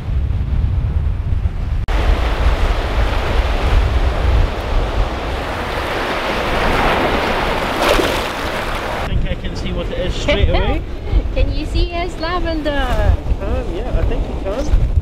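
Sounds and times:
wind buffeting microphone: 0.0 - 15.0
waves breaking over rocks and sand: 1.8 - 11.4.

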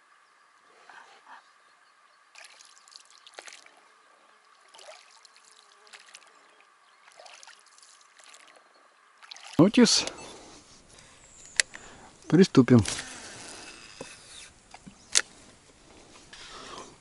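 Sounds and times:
oars splashing in water: 2.3 - 10.5.

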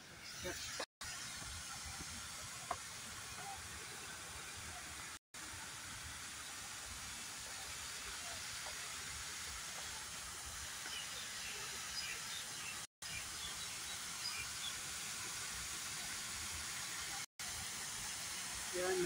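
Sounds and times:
waterfall hissing: 0.2 - 19.0.

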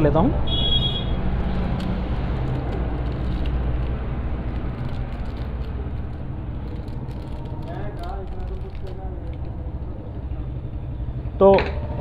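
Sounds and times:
foil packet crinkling and tearing: 1.4 - 9.9.

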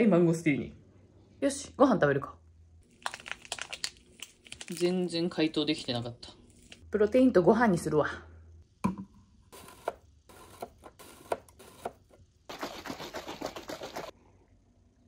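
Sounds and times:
shaker bottle shaken: 12.5 - 14.1.

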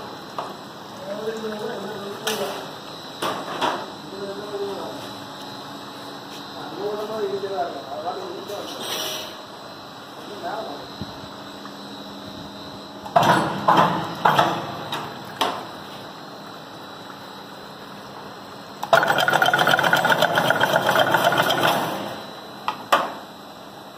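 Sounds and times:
fencing machine clanking and clattering: 18.9 - 22.0.

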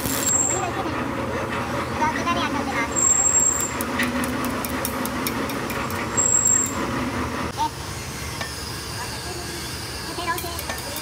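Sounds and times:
welding arc crackling: 0.0 - 0.6.

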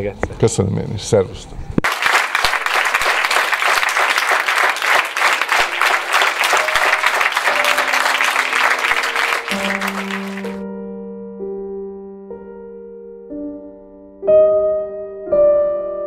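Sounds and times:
audience applauding: 1.8 - 10.6
music with long held notes: 4.0 - 16.0.

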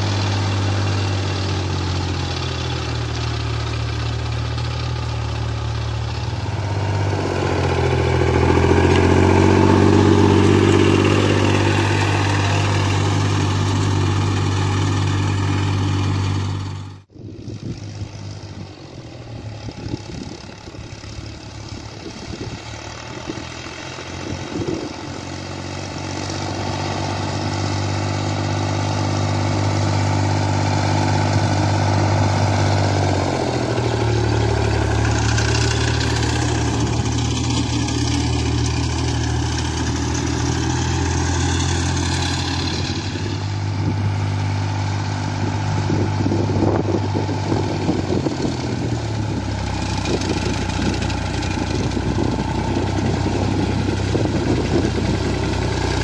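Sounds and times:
sickle bar mower chattering: 0.0 - 17.0, 17.6 - 56.0
tractor diesel engine running: 0.0 - 56.0.

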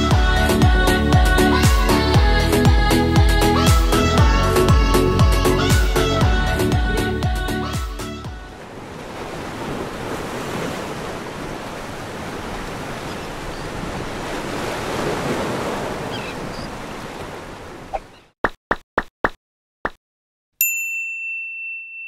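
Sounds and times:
ocean surf washing onto beach: 8.5 - 18.1.

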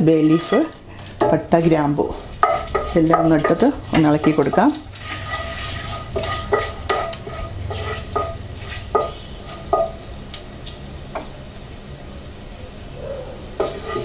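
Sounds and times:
wooden spatula scraping pan: 0.0 - 10.0, 13.6 - 14.0
oil sizzling: 0.0 - 14.0.

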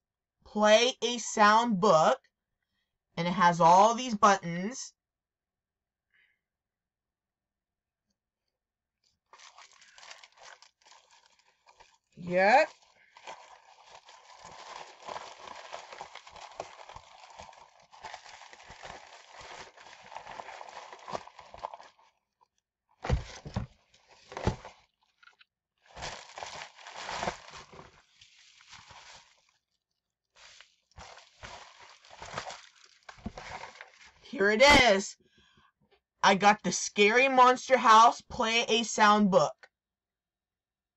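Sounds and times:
plastic packaging crinkling: 9.2 - 22.2, 23.0 - 29.8, 30.4 - 34.3.

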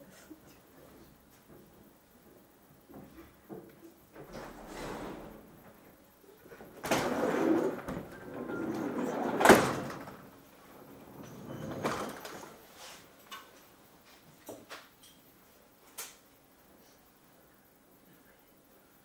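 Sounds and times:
door shutting with a bang: 4.2 - 6.0
sliding door rumbling on track: 4.2 - 12.5.

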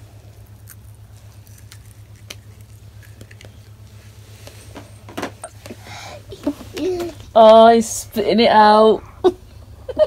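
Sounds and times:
low hum: 0.0 - 10.0
person chewing crunchy food: 0.2 - 3.9.

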